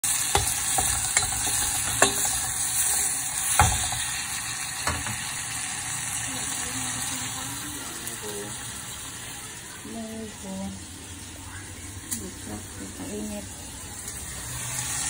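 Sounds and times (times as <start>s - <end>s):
vegetables sizzling in a saucepan: 0.0s - 15.0s
spatula knocking against pan: 0.3s - 2.4s.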